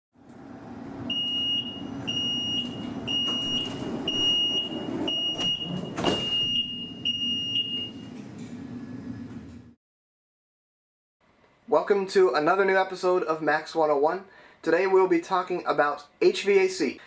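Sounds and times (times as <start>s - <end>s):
doors sliding shut: 0.3s - 7.2s
high steady beep: 1.1s - 8.0s.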